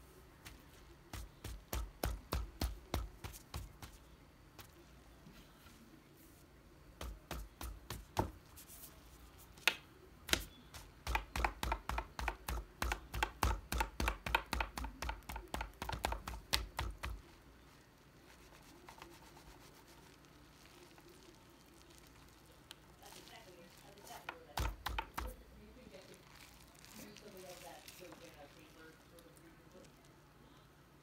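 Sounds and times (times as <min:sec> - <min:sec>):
gel stress ball squishing: 0:19.7 - 0:30.0.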